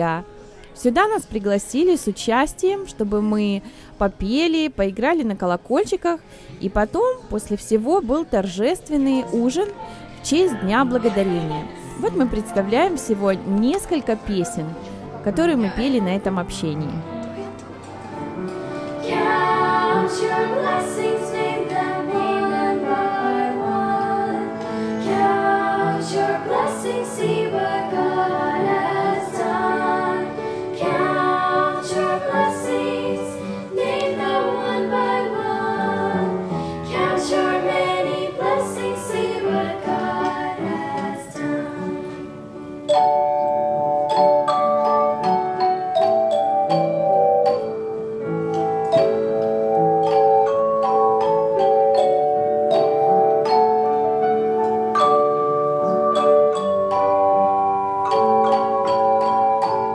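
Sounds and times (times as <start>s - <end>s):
girls and children singing: 18.9s - 42.6s
handbells ringing chords: 42.8s - 59.9s.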